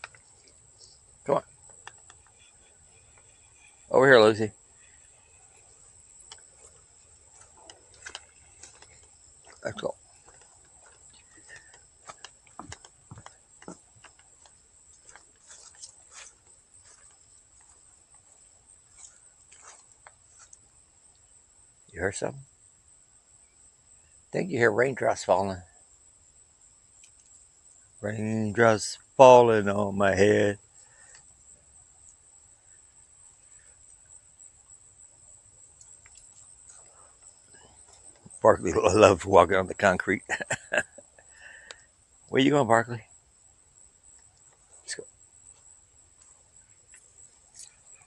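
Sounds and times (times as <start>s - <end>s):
insects droning: 0.0s - 48.0s
raindrops dripping from trees: 4.8s - 16.1s, 35.7s - 41.9s.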